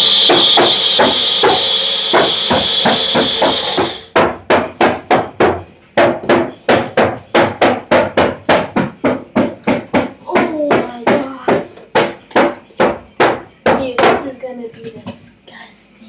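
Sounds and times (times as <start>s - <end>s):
blender motor whine: 0.0s - 4.1s
steady knocking beat: 0.0s - 14.4s.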